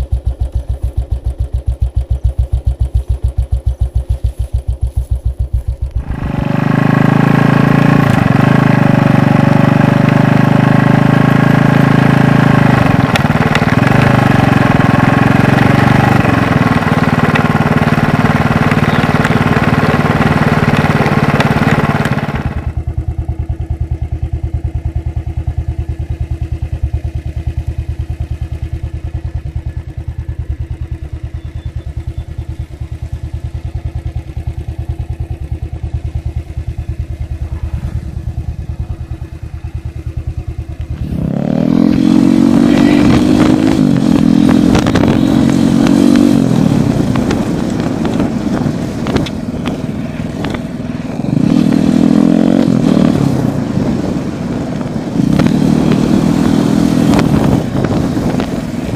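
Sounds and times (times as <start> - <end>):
motorcycle engine idling and accelerating: 0.0 - 58.9.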